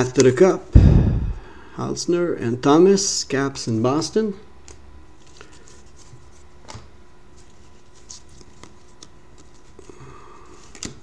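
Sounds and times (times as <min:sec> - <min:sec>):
cards sliding: 0:05.2 - 0:11.0.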